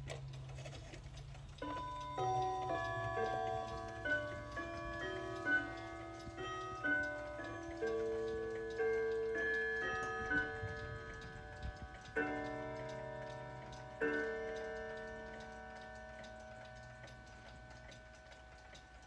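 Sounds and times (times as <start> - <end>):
clock ticking: 0.0 - 19.0
wall clock striking: 1.6 - 19.0.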